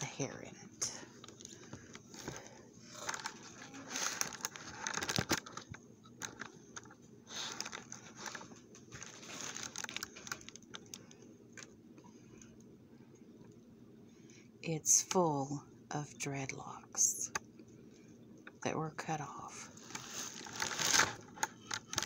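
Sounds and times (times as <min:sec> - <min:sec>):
packing paper rustling: 0:01.2 - 0:11.7, 0:19.7 - 0:22.0.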